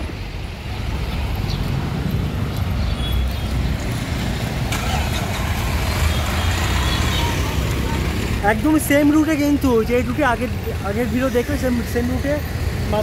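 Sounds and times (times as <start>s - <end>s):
other vehicles on road: 0.0s - 13.0s
truck engine rumble passing: 3.7s - 9.0s.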